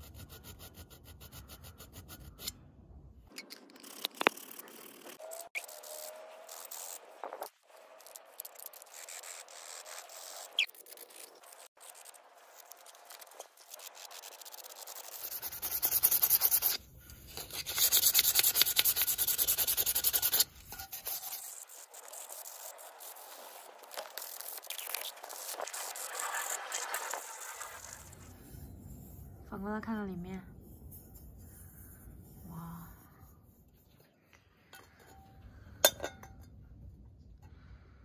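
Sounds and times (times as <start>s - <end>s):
fast rubbing strokes: 0.0s - 2.6s, 3.7s - 29.4s, 30.5s - 34.1s
needle file scraping metal: 0.0s - 2.6s, 3.3s - 29.3s.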